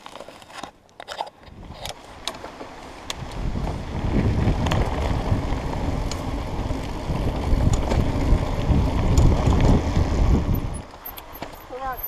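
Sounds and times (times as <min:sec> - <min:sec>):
bike clicks and rattles: 0:00.0 - 0:12.0
bike tyre rumble: 0:00.0 - 0:12.0
wind buffeting microphone: 0:03.1 - 0:12.0.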